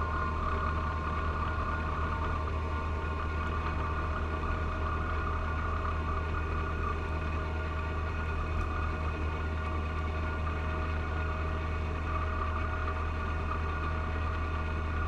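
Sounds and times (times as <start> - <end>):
snowblower whine: 0.0 - 15.0
tractor diesel engine droning: 0.0 - 15.0.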